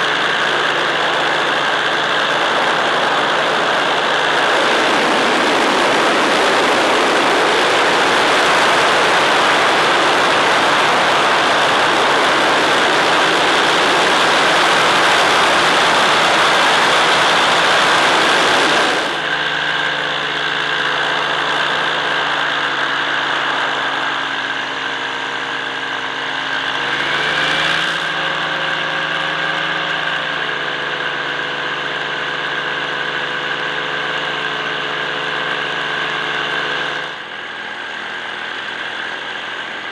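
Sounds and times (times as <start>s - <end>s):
drone motor hum: 0.0s - 24.6s
drone rushing noise with whine: 0.0s - 39.9s.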